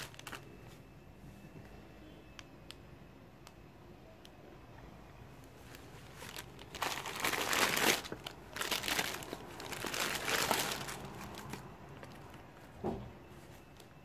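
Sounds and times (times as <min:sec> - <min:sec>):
plastic packaging crinkling: 0:00.0 - 0:00.6, 0:05.5 - 0:12.6.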